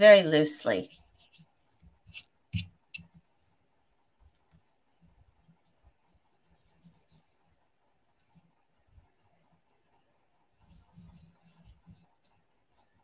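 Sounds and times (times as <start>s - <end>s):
paintbrush scratching on paper: 0.3s - 3.3s, 4.9s - 7.6s, 10.5s - 13.0s.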